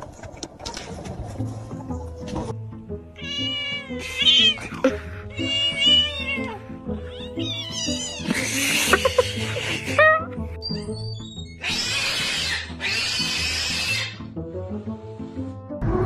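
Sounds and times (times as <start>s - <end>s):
background music: 0.4s - 16.0s
kittens mewing: 3.2s - 10.4s.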